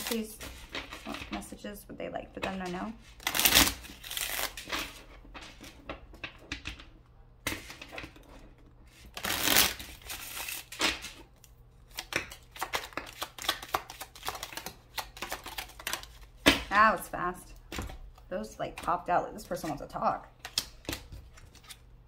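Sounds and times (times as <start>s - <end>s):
cards being shuffled: 2.5s - 5.7s, 8.9s - 11.2s, 11.9s - 16.4s, 20.4s - 21.9s.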